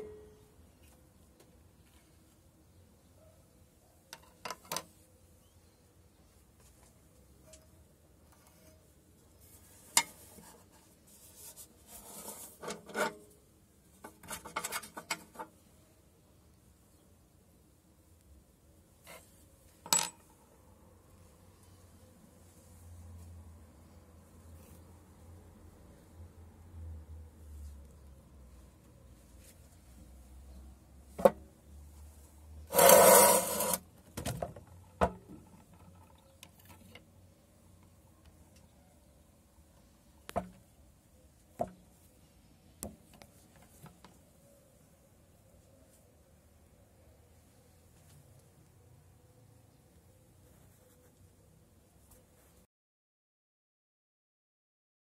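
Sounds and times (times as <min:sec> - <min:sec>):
metal scraping and rubbing: 0:08.4 - 0:13.3, 0:14.0 - 0:15.6, 0:32.7 - 0:33.9
metal scraping: 0:11.9 - 0:13.4, 0:32.7 - 0:33.8.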